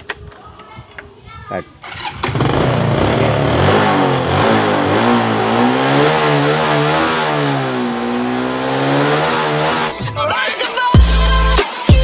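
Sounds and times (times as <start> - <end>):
scooter engine running: 1.9 - 10.0.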